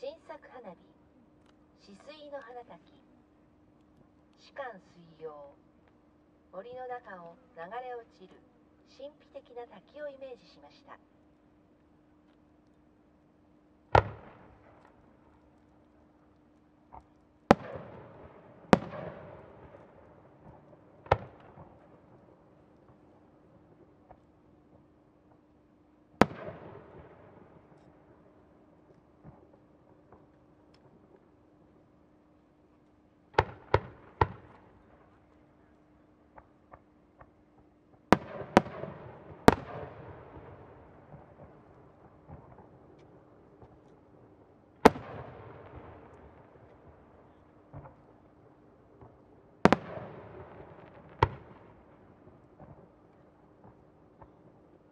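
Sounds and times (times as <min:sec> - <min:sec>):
fireworks bangs with echo: 0:13.9 - 0:15.1, 0:17.5 - 0:24.2, 0:26.2 - 0:28.3, 0:33.3 - 0:35.2, 0:38.1 - 0:43.9, 0:44.8 - 0:54.9.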